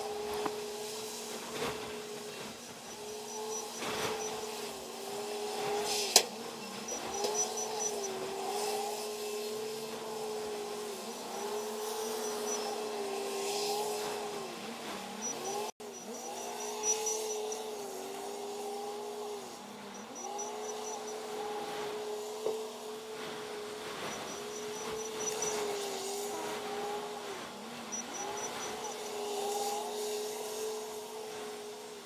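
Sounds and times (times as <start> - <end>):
heavy machinery engine whine: 0.0 - 31.3
faint high beeping: 2.8 - 4.6, 6.6 - 8.2, 15.2 - 17.9, 24.0 - 25.7, 27.9 - 29.1.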